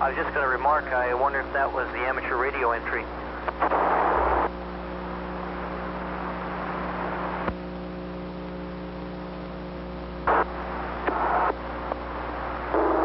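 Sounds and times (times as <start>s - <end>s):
burst of static: 0.0s - 7.5s, 10.0s - 13.0s
radio line hiss and hum: 0.0s - 13.0s.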